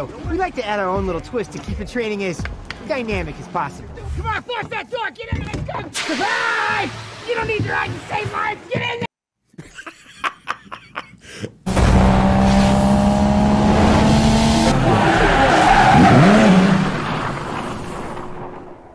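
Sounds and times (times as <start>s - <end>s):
car engine swooping in pitch: 11.7s - 18.8s.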